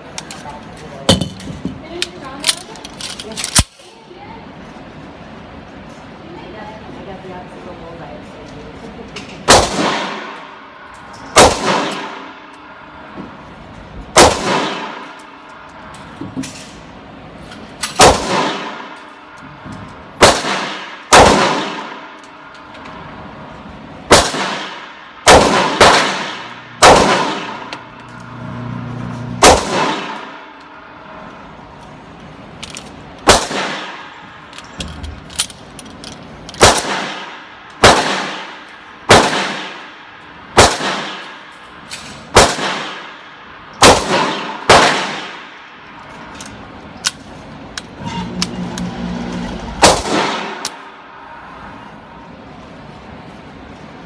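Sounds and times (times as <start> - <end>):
handgun shots with ringing echo: 11.3 - 12.4, 20.2 - 22.2, 24.1 - 27.9, 29.4 - 30.4, 43.8 - 45.5.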